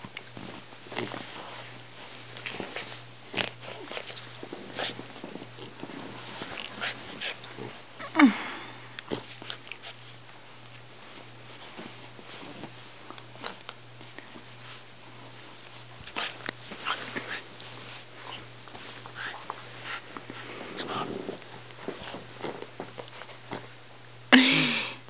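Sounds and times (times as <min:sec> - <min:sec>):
dogs snuffling: 0:00.1 - 0:23.8.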